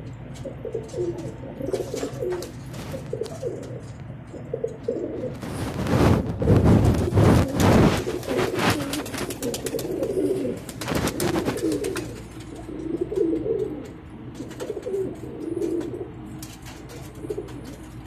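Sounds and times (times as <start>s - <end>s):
pigeons cooing: 0.0s - 18.0s.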